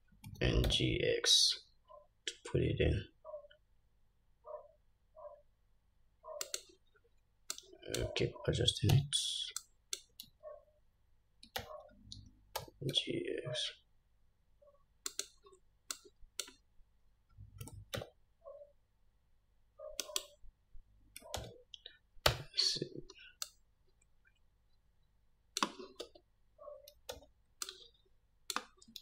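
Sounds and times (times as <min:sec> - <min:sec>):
computer mouse clicks: 0:06.2 - 0:06.8, 0:08.8 - 0:10.4, 0:15.0 - 0:16.6, 0:19.8 - 0:20.4, 0:21.1 - 0:22.4, 0:25.5 - 0:29.0.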